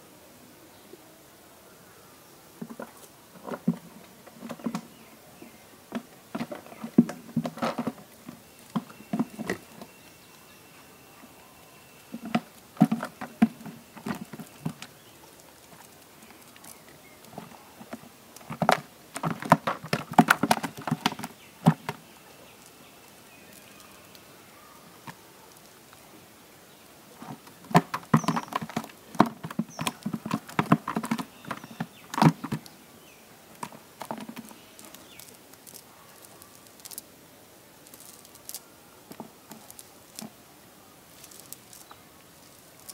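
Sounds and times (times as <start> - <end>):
fish flapping and splashing in bucket: 15.7 - 22.0, 27.3 - 32.7, 33.6 - 35.8.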